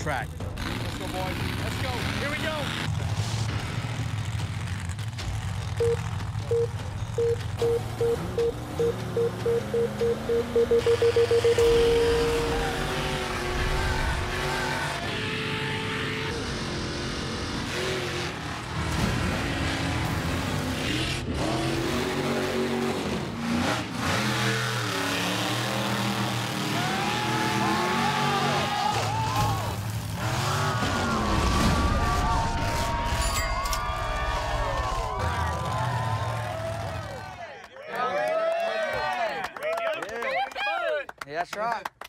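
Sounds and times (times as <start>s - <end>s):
truck engines revving hard: 0.0s - 33.2s, 33.8s - 37.4s
start signal beeps: 5.8s - 12.5s
long start tone: 5.8s - 13.0s.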